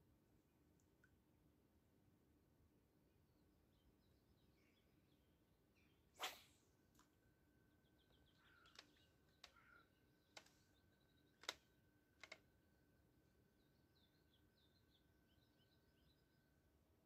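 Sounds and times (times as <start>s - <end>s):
faint bird chirps: 3.4s - 12.4s, 13.4s - 16.8s.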